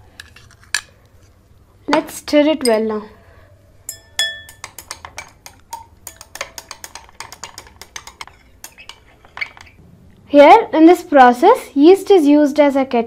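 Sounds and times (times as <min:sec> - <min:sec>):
rod clinking against wine glass: 0:03.9 - 0:05.1.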